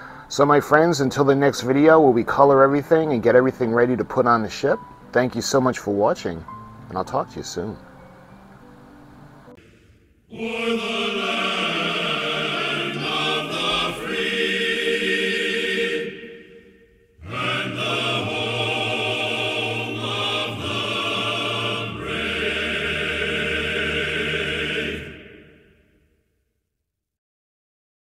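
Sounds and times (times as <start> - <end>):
music with sustained chords: 6.3 - 25.7.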